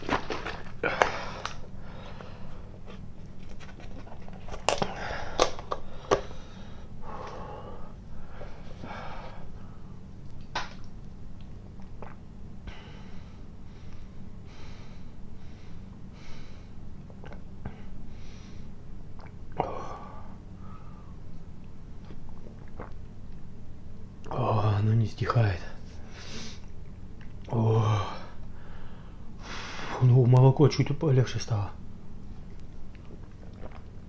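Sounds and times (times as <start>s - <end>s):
person drinking: 0.0s - 3.1s, 11.4s - 14.0s, 19.1s - 21.2s, 22.0s - 23.1s, 32.5s - 34.0s
heavy breathing: 0.8s - 2.8s, 4.8s - 10.0s, 12.7s - 16.8s.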